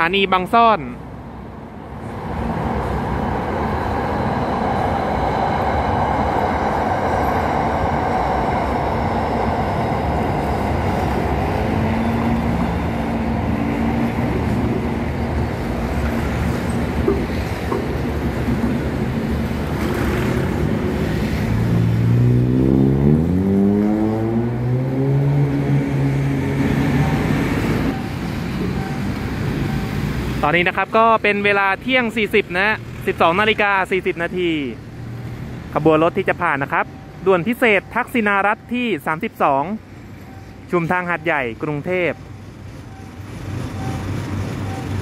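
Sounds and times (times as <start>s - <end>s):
road traffic: 0.0s - 45.0s
electric train whine: 1.3s - 21.6s, 25.2s - 30.1s
vehicle engine revving: 19.8s - 28.0s.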